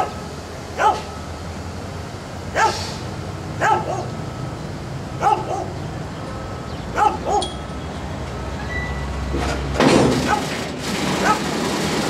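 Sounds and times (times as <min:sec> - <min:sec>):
dog barking: 0:00.8 - 0:01.1, 0:02.6 - 0:02.9, 0:03.6 - 0:04.2, 0:05.2 - 0:05.8, 0:07.0 - 0:07.5.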